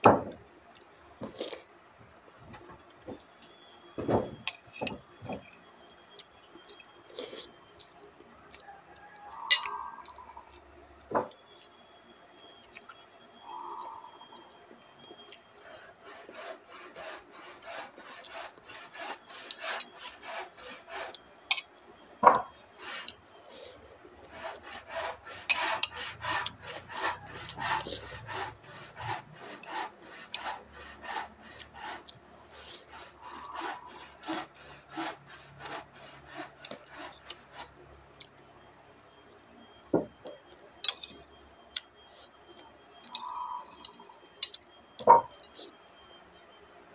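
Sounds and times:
hand saw cutting wood: 15.6s - 21.2s, 22.2s - 37.8s.

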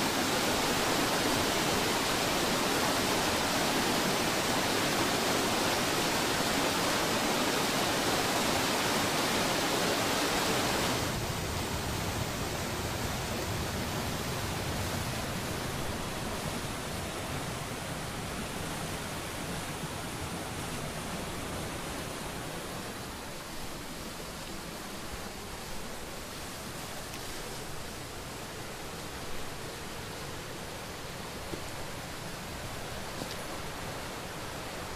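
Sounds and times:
water rushing over rocks: 0.0s - 34.9s.

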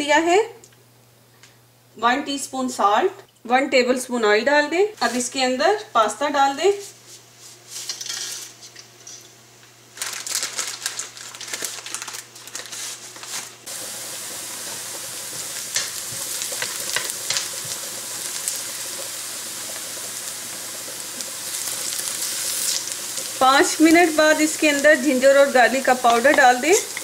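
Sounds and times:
dry pasta rattling into a pot: 10.0s - 12.7s
onion sizzling in oil: 10.0s - 27.0s.

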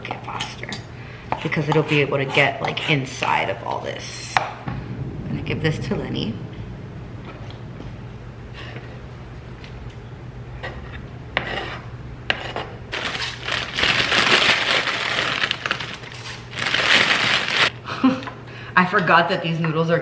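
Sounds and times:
steady low hum: 0.0s - 13.6s
fork scraping cutting board: 10.6s - 12.8s.

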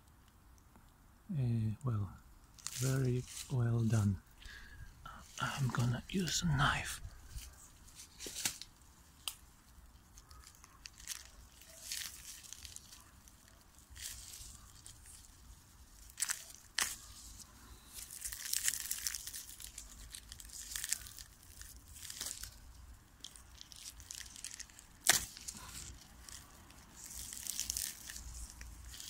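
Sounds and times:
foil and plastic wrap crinkling: 2.5s - 29.0s.

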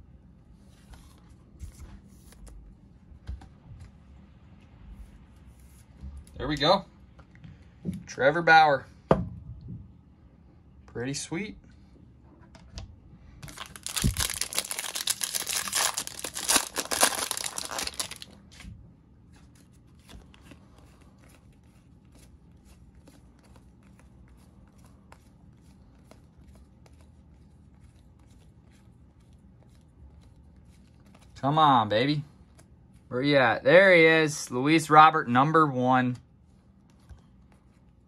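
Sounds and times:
card pack wrapper tearing: 13.4s - 18.4s.

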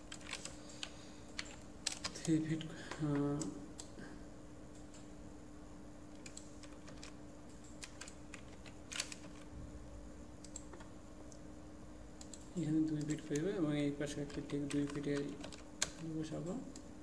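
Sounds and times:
faint steady hum: 0.0s - 17.0s
keyboard and mouse clicks: 6.2s - 9.5s, 10.4s - 10.9s, 14.1s - 16.9s.

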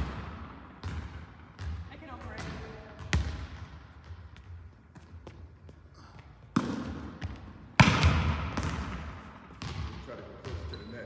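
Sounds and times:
volleyball struck by hand: 6.5s - 10.0s.

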